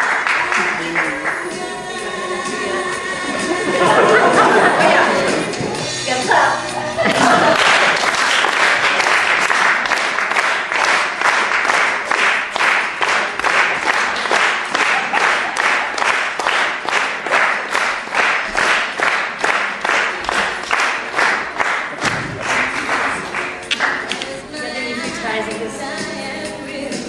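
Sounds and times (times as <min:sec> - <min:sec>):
audience clapping in rhythm: 0:00.0 - 0:02.0, 0:07.0 - 0:24.4.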